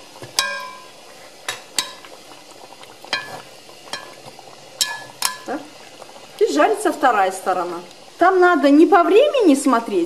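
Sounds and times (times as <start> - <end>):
meat sizzling in oil: 0.0 - 10.0
metal skimmer clinking on pot: 0.3 - 2.0, 4.8 - 5.5.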